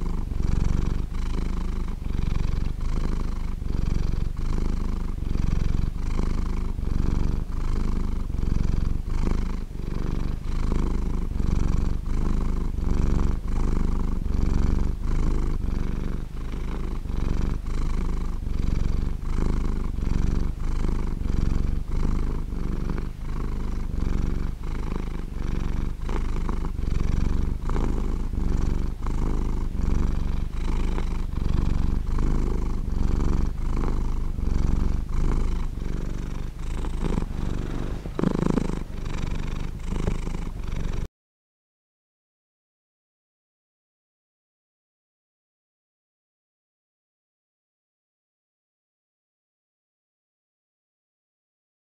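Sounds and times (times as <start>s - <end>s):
cat purring: 0.0s - 41.1s.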